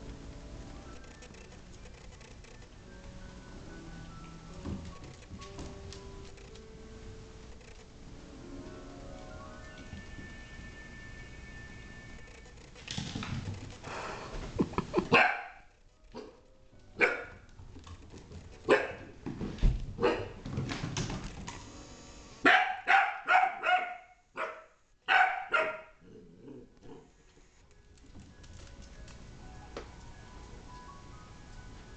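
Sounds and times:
puppy barking: 15.1s - 16.4s, 17.0s - 17.4s, 18.7s - 19.1s, 20.0s - 20.4s, 22.4s - 26.0s.

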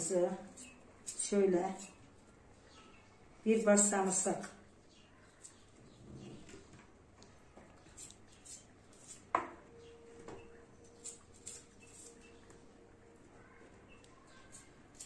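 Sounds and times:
knife peeling garlic: 0.4s - 2.0s, 7.9s - 9.3s, 11.0s - 12.4s, 14.3s - 15.0s.

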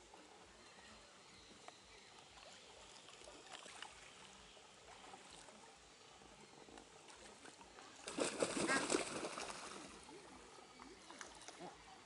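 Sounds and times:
small water splashes and drips: 2.2s - 5.6s, 6.7s - 12.0s.

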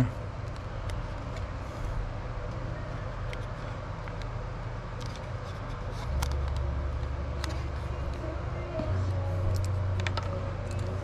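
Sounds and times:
steady low hum: 0.0s - 11.0s
plastic box and wire clicks: 9.5s - 11.0s.

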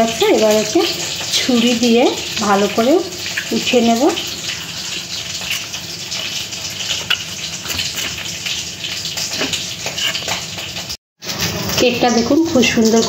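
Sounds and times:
knife scraping metal tin: 9.2s - 10.5s.

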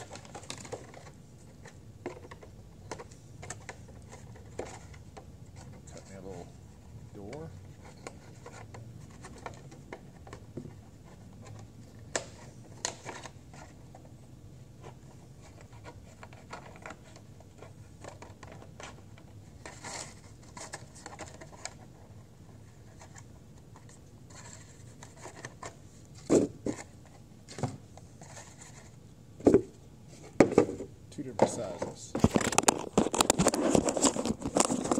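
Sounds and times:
plastic crackling: 32.2s - 34.9s.

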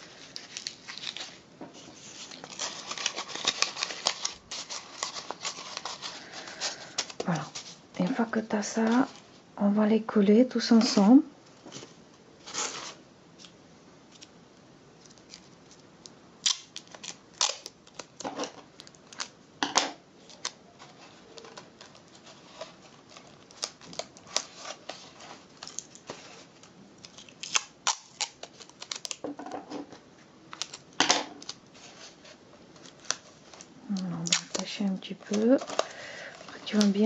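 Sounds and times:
tape and cardboard crackling: 0.0s - 8.2s, 15.0s - 19.4s, 20.2s - 37.0s.

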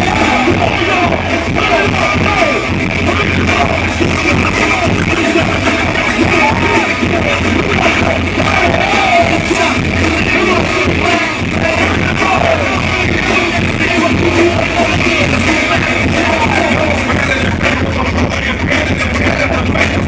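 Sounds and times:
drums: 0.0s - 20.0s
rapped shouted vocals: 0.0s - 20.0s.

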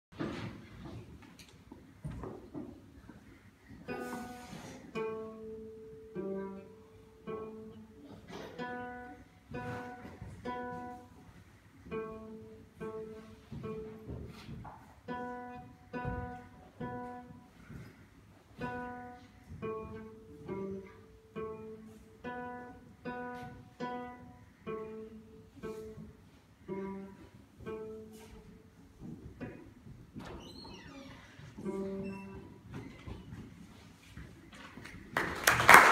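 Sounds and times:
classical guitar plucked tune: 3.9s - 14.2s, 15.0s - 17.6s, 18.6s - 29.8s, 31.6s - 32.5s.

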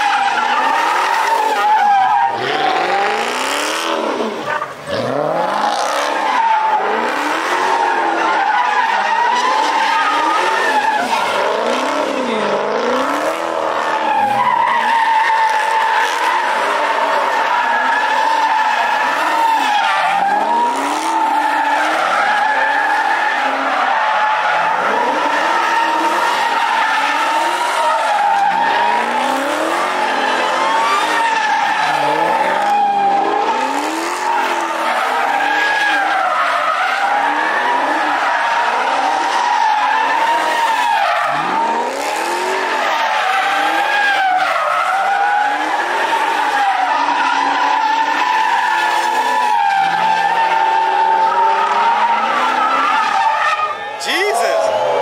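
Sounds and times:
car engine revving: 2.2s - 8.4s, 9.1s - 14.7s, 23.3s - 36.1s, 40.0s - 44.2s
tyres squealing: 13.9s - 55.0s.

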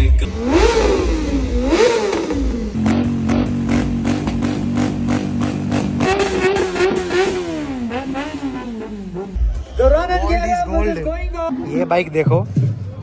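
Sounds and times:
motorcycle engine revving: 0.2s - 9.5s.

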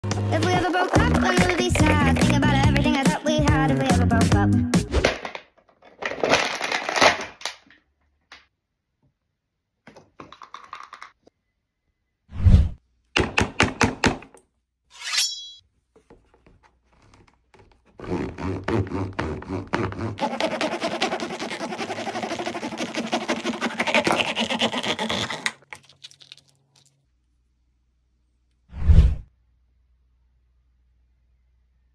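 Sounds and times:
packaging crackling and crinkling: 5.8s - 7.7s, 20.5s - 27.0s
knife sawing through vinyl: 17.9s - 25.6s.

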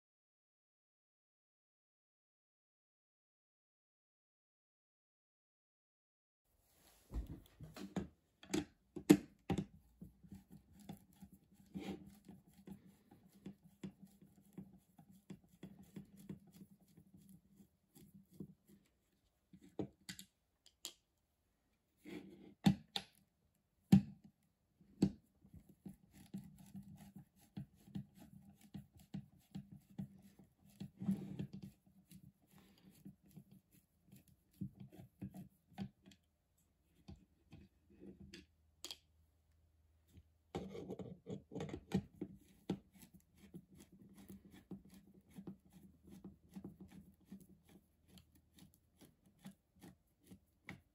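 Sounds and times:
screwdriver scraping on plastic: 8.5s - 18.9s, 25.0s - 36.3s, 40.5s - 50.9s.

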